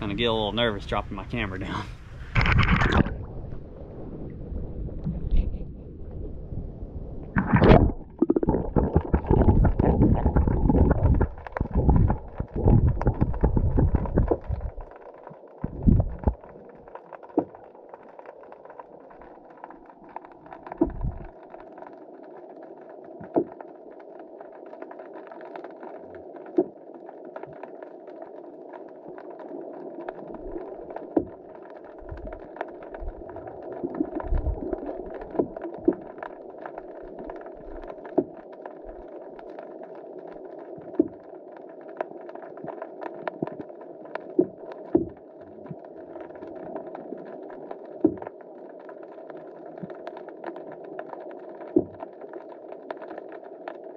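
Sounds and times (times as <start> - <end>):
muffled underwater hum: 0.0 - 15.0, 15.6 - 17.6, 20.6 - 21.4.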